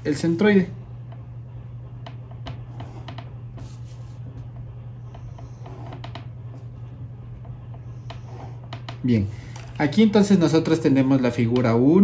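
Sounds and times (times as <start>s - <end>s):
steady low hum: 0.0s - 12.0s
pen drawing on paper: 2.5s - 4.2s, 5.0s - 6.7s, 7.6s - 8.8s.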